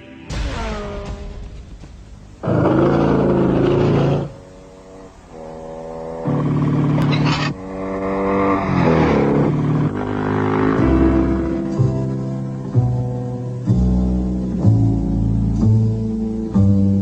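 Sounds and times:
motorcycle engine running hard: 0:02.2 - 0:13.6.

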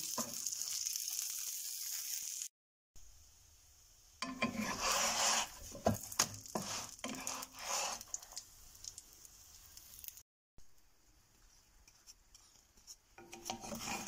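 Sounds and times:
hot oil sizzling: 0:00.0 - 0:10.2, 0:11.3 - 0:14.0
spatula scraping a frying pan: 0:04.2 - 0:08.4, 0:11.8 - 0:14.0.

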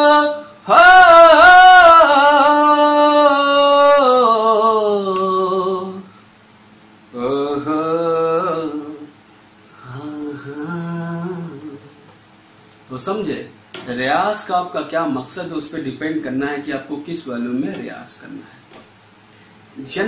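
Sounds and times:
man singing in full voice: 0:00.0 - 0:06.1, 0:07.1 - 0:09.1, 0:09.8 - 0:12.1.

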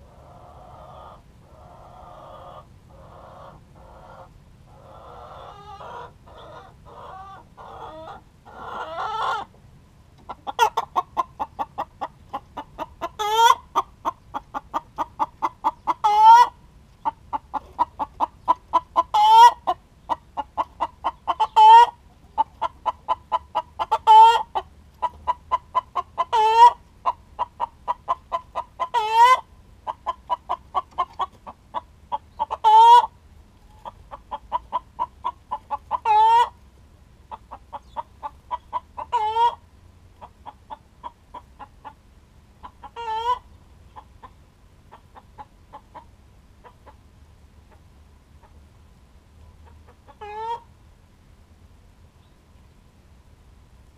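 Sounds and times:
hen clucking: 0:00.0 - 0:09.6, 0:10.2 - 0:48.7, 0:49.4 - 0:50.7.

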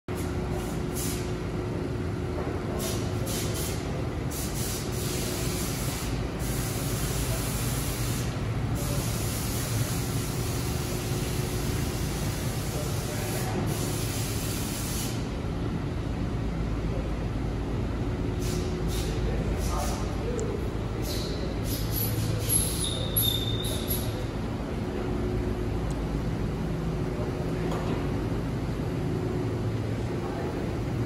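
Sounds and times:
low mechanical hum: 0:00.1 - 0:31.0
hiss: 0:00.5 - 0:01.3, 0:02.8 - 0:15.2, 0:18.4 - 0:20.1, 0:21.0 - 0:24.1.

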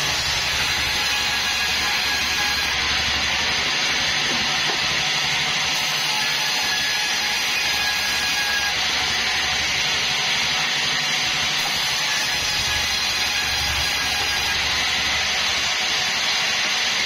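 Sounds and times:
band sawmill cutting log: 0:00.0 - 0:17.0.

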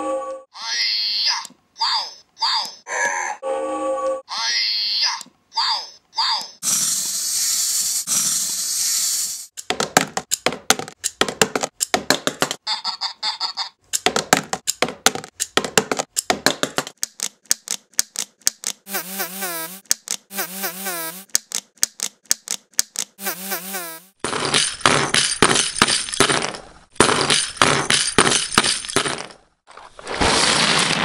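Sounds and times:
warbling electronic toy voice: 0:00.5 - 0:03.4, 0:04.3 - 0:06.7
toy mechanisms clicking and rattling: 0:06.4 - 0:12.0, 0:21.2 - 0:23.2.

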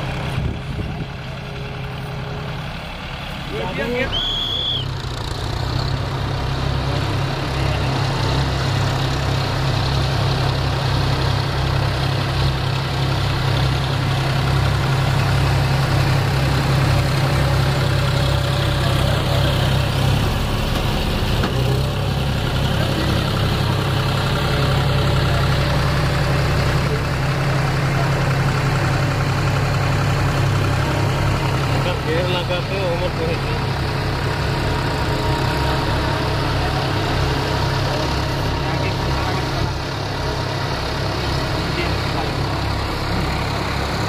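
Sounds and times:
diesel tractor engines droning: 0:00.0 - 0:44.0.

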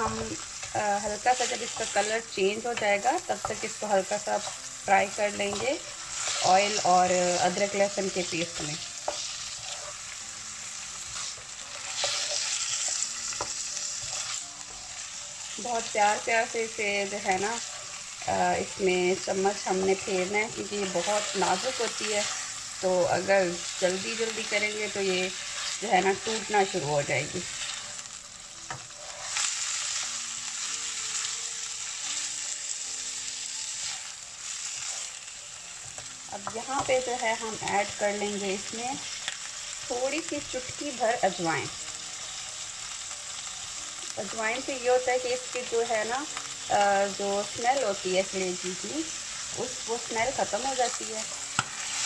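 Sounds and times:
spatula stirring: 0:00.0 - 0:32.8, 0:33.4 - 0:38.0
livers sizzling in oil: 0:00.0 - 0:52.0
spatula tapping pan: 0:07.4 - 0:10.0, 0:50.8 - 0:51.9.

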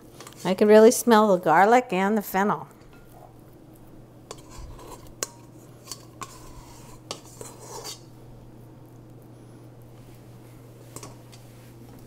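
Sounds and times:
scraper scraping metal bowl: 0:04.3 - 0:08.1.

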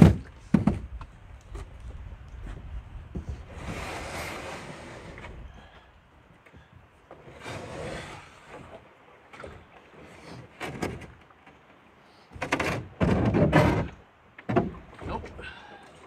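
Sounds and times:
canoe hull scraping on rock: 0:03.2 - 0:05.5, 0:07.1 - 0:08.8, 0:09.4 - 0:11.2, 0:12.3 - 0:14.8.

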